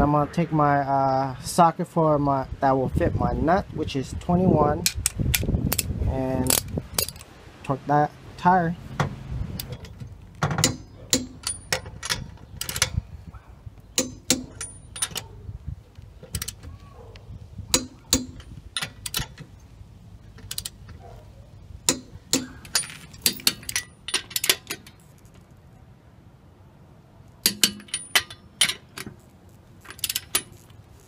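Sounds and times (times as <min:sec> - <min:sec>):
torque wrench clicking: 0:04.9 - 0:07.3.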